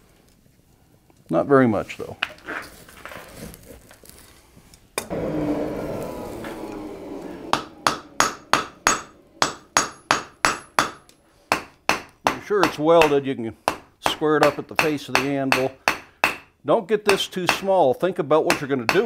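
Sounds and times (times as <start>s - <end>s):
hammer ringing on hot steel: 7.5s - 16.5s, 18.5s - 19.0s.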